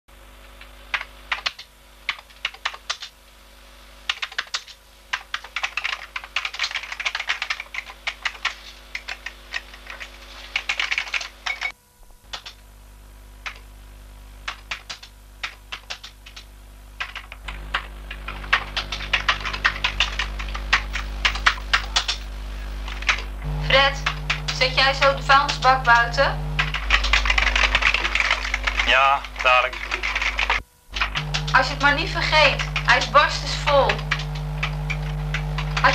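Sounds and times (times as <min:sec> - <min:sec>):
low steady hum: 0:16.5 - 0:35.9.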